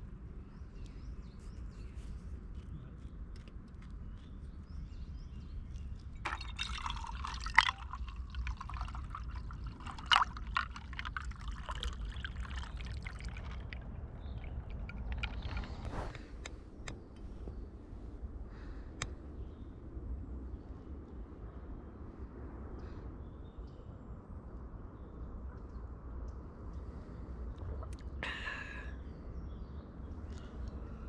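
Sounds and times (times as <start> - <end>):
drink pouring into metal mug: 6.3 - 15.7.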